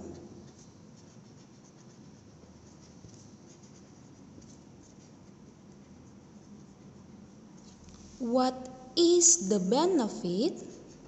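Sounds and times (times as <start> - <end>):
pen scratching on paper: 0.0 - 7.6, 10.3 - 11.0.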